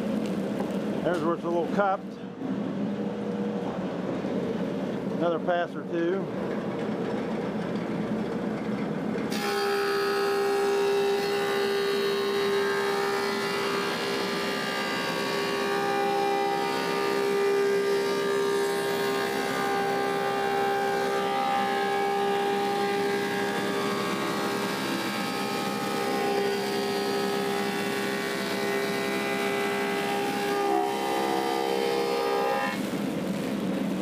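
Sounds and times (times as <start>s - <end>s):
planer cutting wood: 9.3s - 32.9s.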